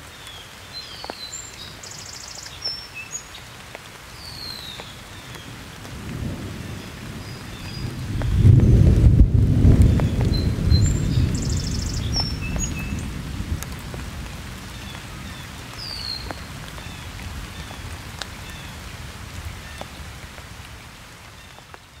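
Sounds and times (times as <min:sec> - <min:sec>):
steady rain on a stream: 0:00.0 - 0:22.0
low rumble of thunder: 0:05.4 - 0:15.7.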